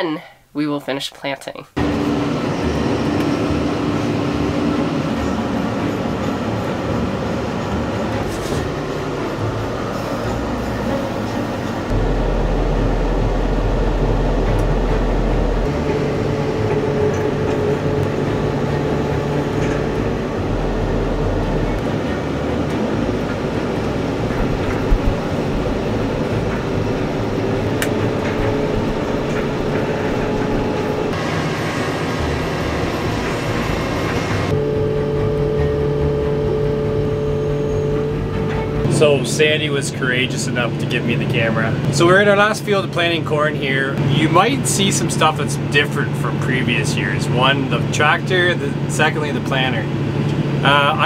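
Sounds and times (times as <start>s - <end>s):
land roller rumbling over soil: 1.8s - 35.6s
tractor engine running: 1.8s - 51.0s.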